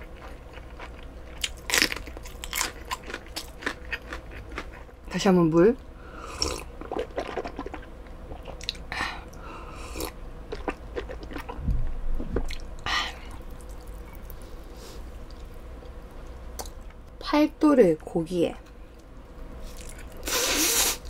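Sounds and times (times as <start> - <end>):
person chewing and swallowing: 6.4 - 14.4, 19.7 - 20.2
soft low thump: 11.6 - 12.5.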